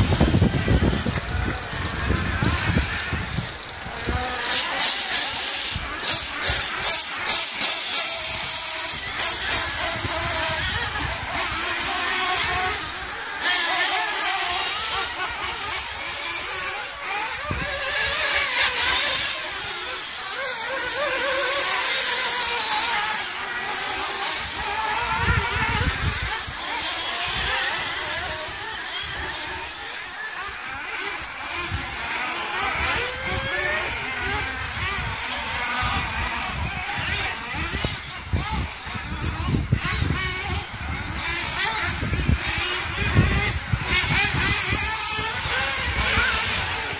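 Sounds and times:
model car motor whining: 0.0s - 46.9s.

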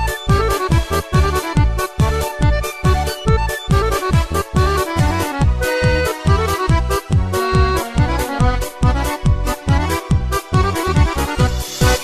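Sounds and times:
music melody: 0.0s - 12.0s
electronic kick drum beat: 0.1s - 12.0s.

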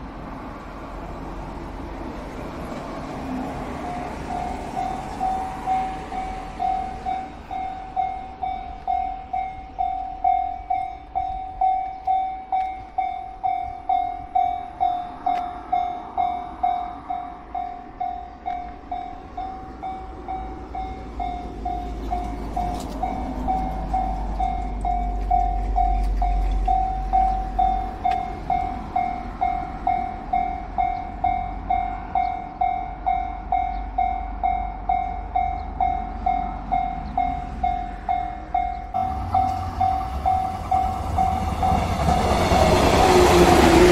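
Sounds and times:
crossing bell electronic ding: 3.8s - 43.0s
low rumble: 39.0s - 43.9s.

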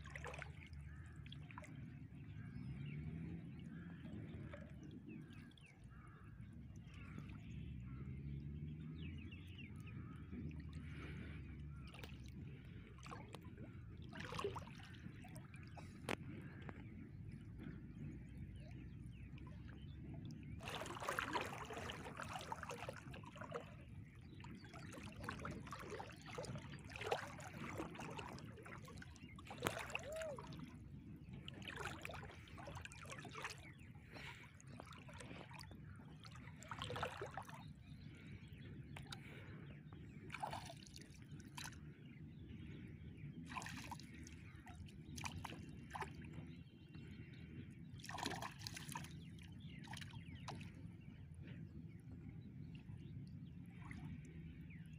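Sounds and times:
water dripping and splashing: 11.9s - 16.8s, 19.4s - 23.8s, 24.5s - 33.6s.

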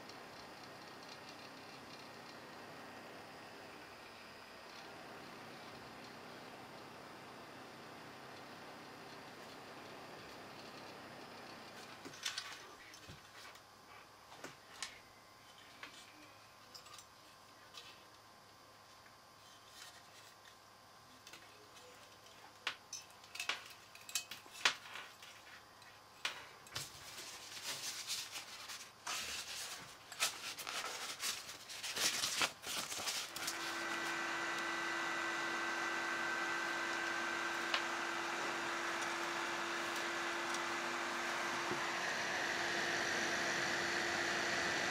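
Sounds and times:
cooling fan whining: 0.0s - 44.9s
clicks and knocks of handling: 21.3s - 25.5s
plastic and wires rustling: 26.7s - 34.2s.

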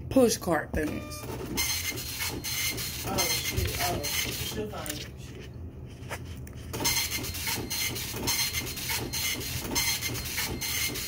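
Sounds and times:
printer rasping rhythmically: 1.2s - 4.7s, 6.7s - 11.0s.

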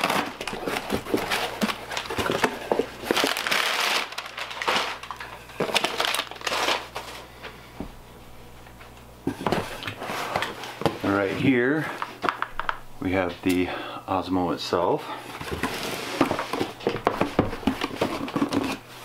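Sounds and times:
paper and cardboard crinkling: 0.0s - 7.3s, 15.2s - 19.0s.

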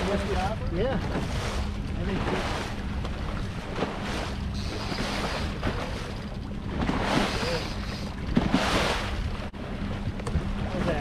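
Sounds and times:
outboard motor hum: 0.0s - 11.0s
water surging against hull: 0.0s - 11.0s
wind: 0.0s - 11.0s.

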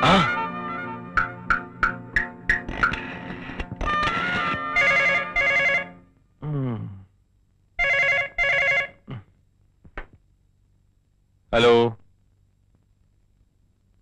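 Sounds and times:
telephone bell ringing: 4.8s - 6.0s, 7.8s - 9.0s.

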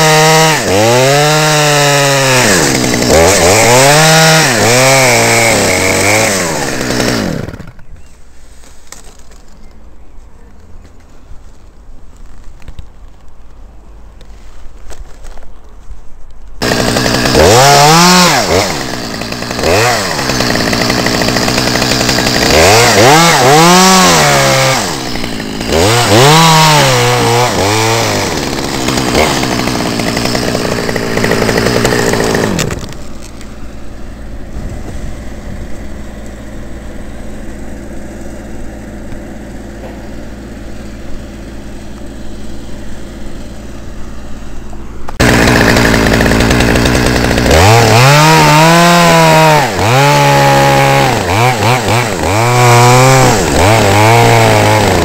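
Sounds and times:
chainsaw revving: 0.0s - 7.9s, 16.6s - 55.0s.

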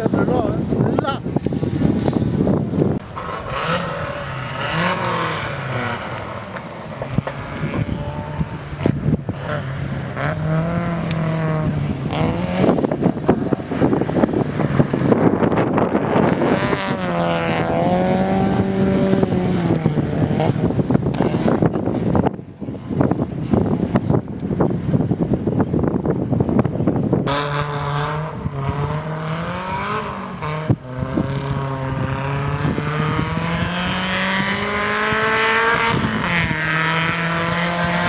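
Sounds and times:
rally car engines revving: 0.0s - 38.0s
gravel spraying: 3.0s - 10.2s.

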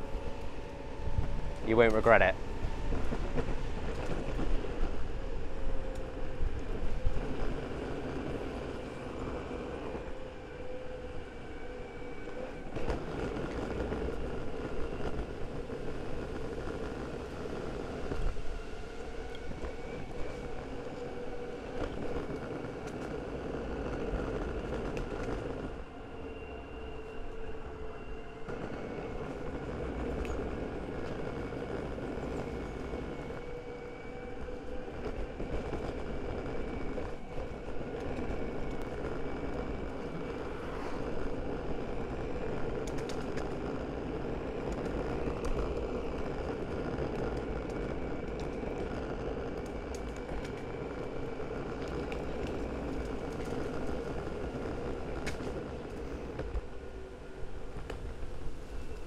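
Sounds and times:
skateboard rolling on road: 2.4s - 59.0s
skateboard wheels clicking on bumps: 42.4s - 56.7s.

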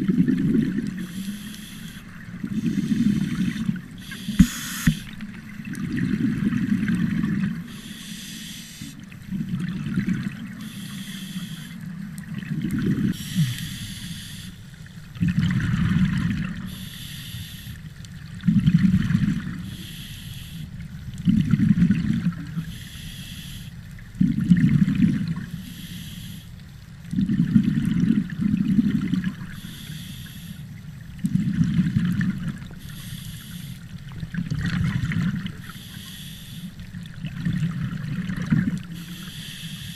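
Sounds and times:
bubbling exhaled air: 0.0s - 11.7s, 24.1s - 25.8s, 27.1s - 29.9s, 31.2s - 39.9s
hissing regulator inhale: 1.0s - 5.2s, 7.6s - 9.0s, 10.6s - 11.9s, 13.0s - 14.8s, 16.7s - 17.8s, 19.6s - 20.7s, 22.6s - 23.8s, 25.5s - 26.5s, 29.5s - 30.6s, 32.7s - 33.9s, 35.6s - 36.8s, 38.9s - 39.9s.

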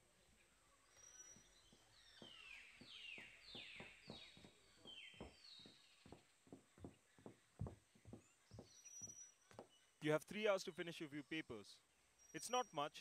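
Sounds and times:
bird calling: 0.0s - 10.0s
footsteps on stone steps: 0.9s - 9.8s.

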